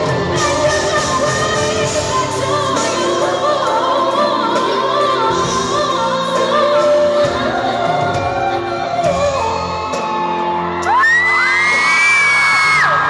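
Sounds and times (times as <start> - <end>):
woman singing into a microphone: 0.0 - 10.2.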